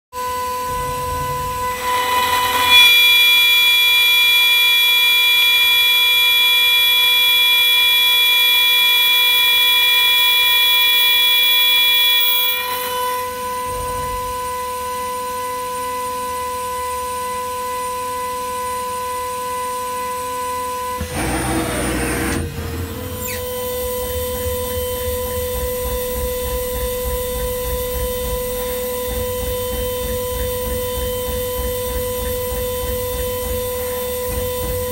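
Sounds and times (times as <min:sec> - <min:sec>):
milling spindle whining: 0:00.7 - 0:13.4.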